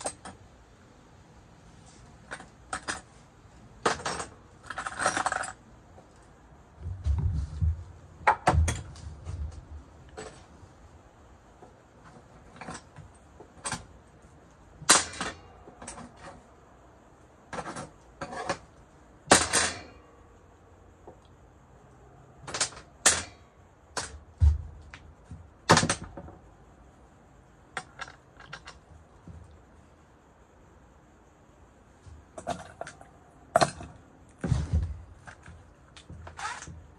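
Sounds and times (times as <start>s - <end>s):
metal parts clinking and knocking: 0.0s - 0.4s, 2.2s - 3.2s, 3.8s - 6.2s, 12.0s - 14.0s, 14.8s - 16.4s, 17.5s - 18.7s, 19.3s - 20.0s, 27.7s - 29.0s, 32.4s - 36.9s.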